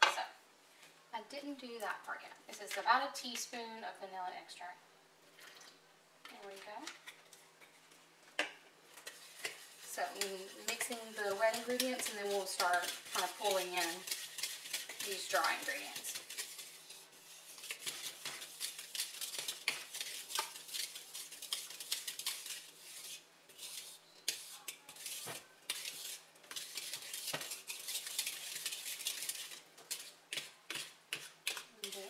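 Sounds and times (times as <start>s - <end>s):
whisk scraping bowl: 8.9s - 32.0s.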